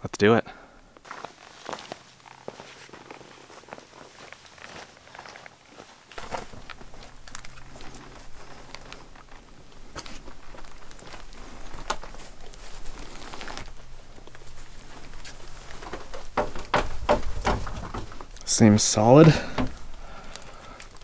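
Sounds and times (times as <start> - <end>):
clothing rustling: 1.0 - 21.0
hand brushing rock: 6.2 - 20.4.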